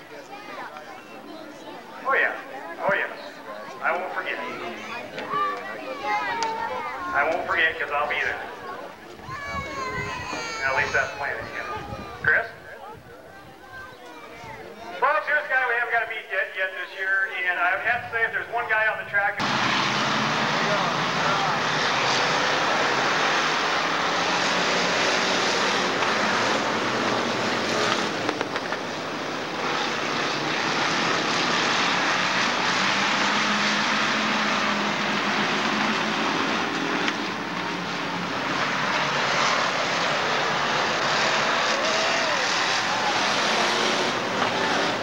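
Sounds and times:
race car engines roaring: 0.0 - 45.0
single engine revving: 19.4 - 28.8, 38.3 - 45.0.

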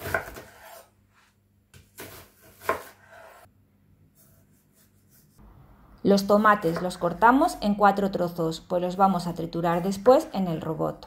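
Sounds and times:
knife cutting on wooden board: 0.0 - 0.9, 1.8 - 3.5.

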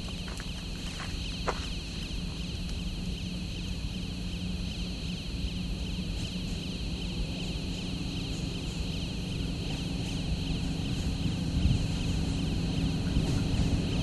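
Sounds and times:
distant train hum: 0.0 - 14.0
high-pitched whine: 0.0 - 14.0.

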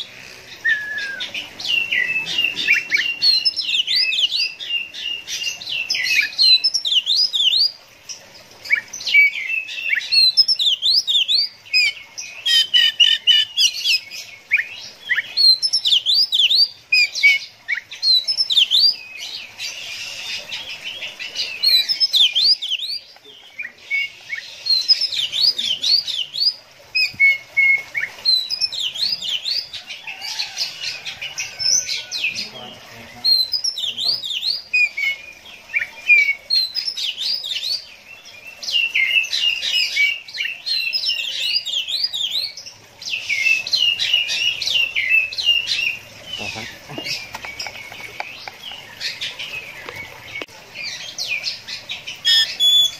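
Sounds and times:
bird singing whistled notes: 0.6 - 4.9, 52.2 - 52.9.

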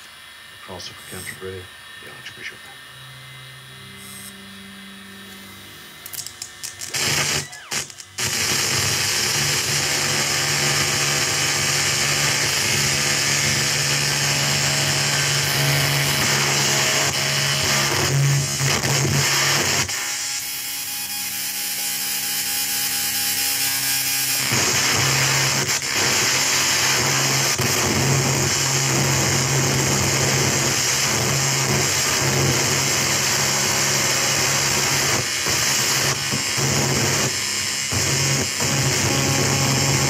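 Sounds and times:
steady low hum: 0.0 - 19.0
loud dense electronic hiss: 0.0 - 20.3
crackling pops: 6.0 - 9.6.

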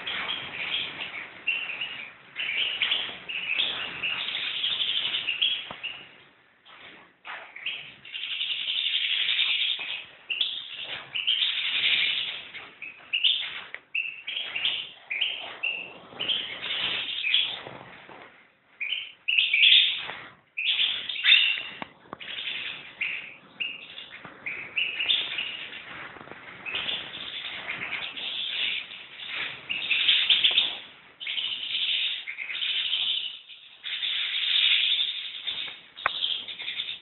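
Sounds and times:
goldfinch twittering song: 0.0 - 6.1, 20.6 - 25.8.

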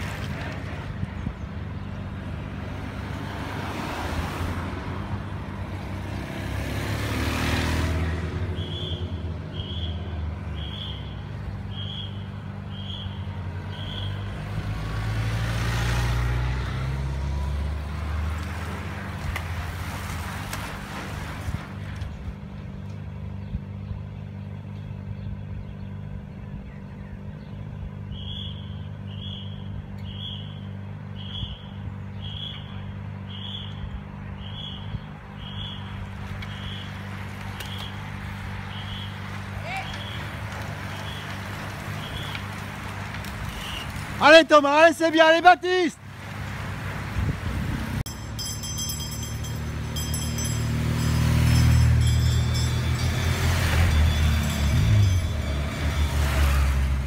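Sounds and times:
vehicle passing: 0.0 - 23.3, 27.1 - 57.0
low engine hum: 0.0 - 44.2, 46.0 - 57.0
motorcycle accelerating past: 5.8 - 8.8, 13.8 - 19.0, 49.8 - 57.0.

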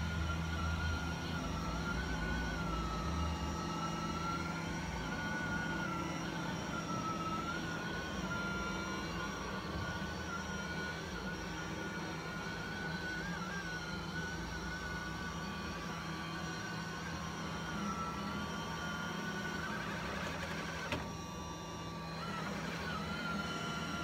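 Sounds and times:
robot vacuum running: 0.0 - 24.0.

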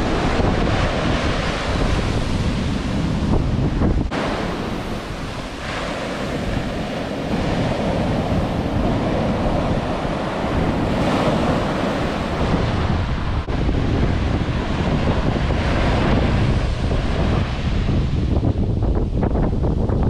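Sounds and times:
ocean surf breaking on sand: 0.0 - 19.2
wind buffeting microphone: 0.0 - 20.0.

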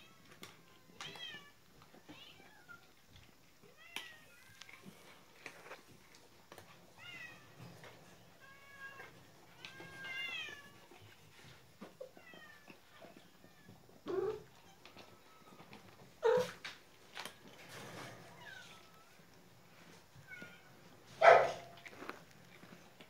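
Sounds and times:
kibble crunching: 0.3 - 8.0, 18.4 - 23.0.

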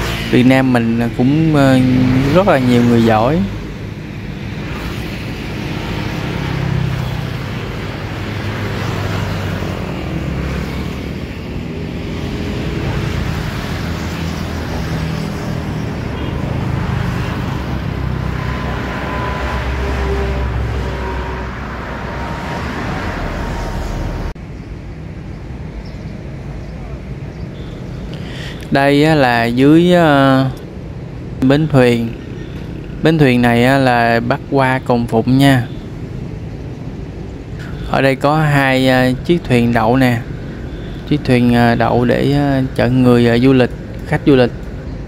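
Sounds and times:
road traffic on a bridge: 0.0 - 45.0.

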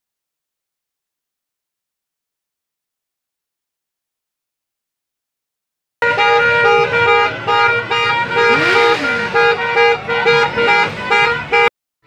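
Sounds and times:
vehicle horn honking: 6.0 - 11.7.

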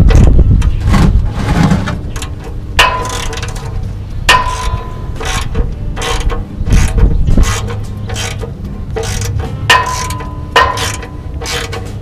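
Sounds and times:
metallic ring: 2.8 - 6.4, 7.6 - 12.0.

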